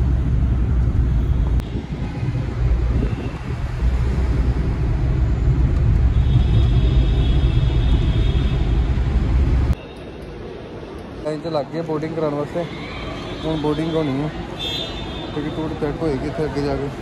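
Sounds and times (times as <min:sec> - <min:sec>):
car engine and road rumble: 0:00.0 - 0:09.8.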